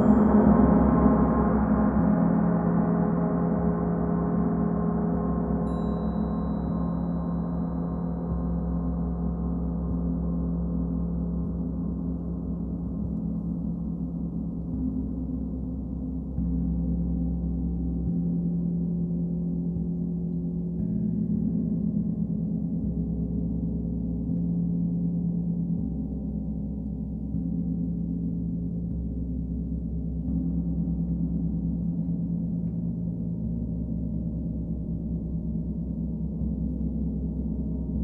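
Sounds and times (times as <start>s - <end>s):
deep gong drone: 0.0s - 2.5s.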